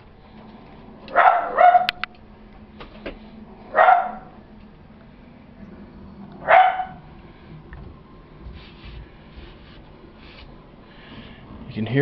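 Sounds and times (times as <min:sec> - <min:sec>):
dog barking: 0:01.1 - 0:02.0, 0:03.7 - 0:04.4, 0:06.4 - 0:07.1.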